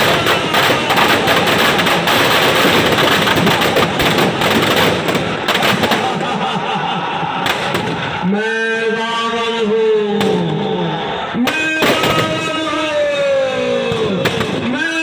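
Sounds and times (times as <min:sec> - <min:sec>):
firecrackers crackling and popping: 0:00.0 - 0:06.6, 0:07.4 - 0:08.2, 0:11.4 - 0:15.0.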